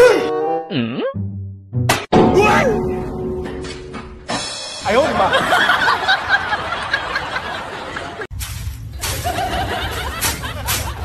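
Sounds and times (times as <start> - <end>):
people laughing: 5.0 - 8.3, 9.0 - 11.0.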